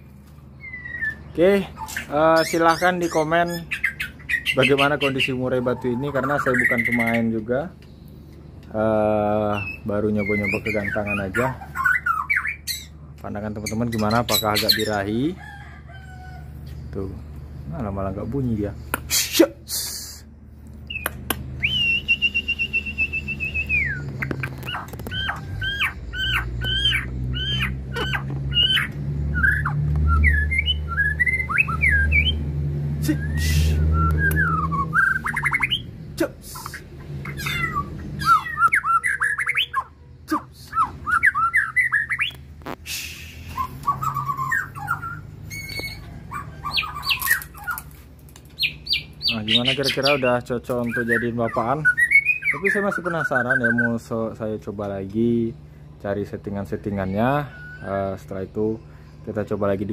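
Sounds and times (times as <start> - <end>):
bird singing whistled phrases: 0.6 - 1.4, 9.5 - 12.9, 20.9 - 32.4, 33.0 - 35.9, 36.6 - 39.9, 40.6 - 42.4, 43.0 - 46.1, 48.6 - 54.1.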